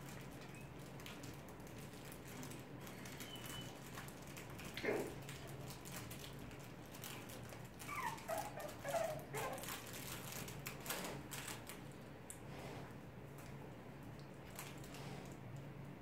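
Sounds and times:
claws clicking on tiled floor: 0:00.0 - 0:12.0
puppies whimpering: 0:07.8 - 0:09.7.

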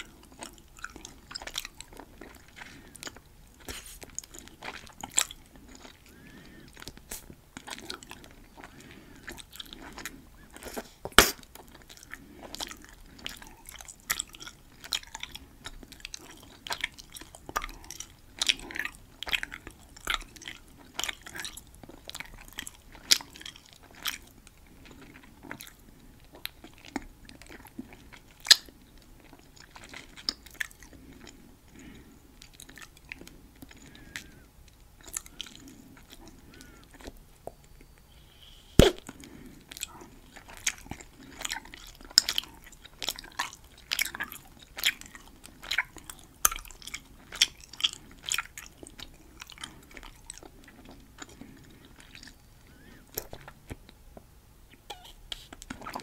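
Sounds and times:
gum chewing mouth clicks: 0:00.0 - 0:31.4, 0:32.4 - 0:54.0
gum snapping: 0:38.8 - 0:39.2.

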